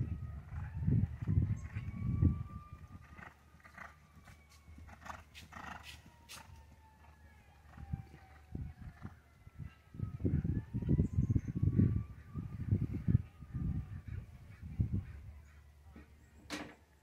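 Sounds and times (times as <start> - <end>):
horse hooves thudding on turf: 3.1 - 7.1.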